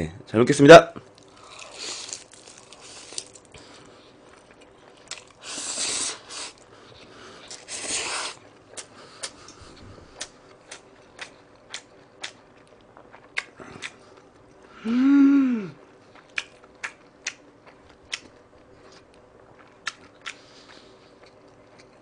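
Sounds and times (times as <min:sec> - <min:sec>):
wet chewing with mouth clicks: 0:01.1 - 0:14.7, 0:15.8 - 0:22.0.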